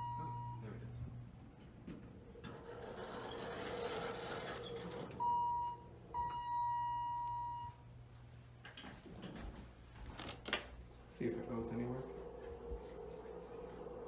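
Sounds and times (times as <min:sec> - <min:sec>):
elevator door sliding open: 0:01.9 - 0:06.2.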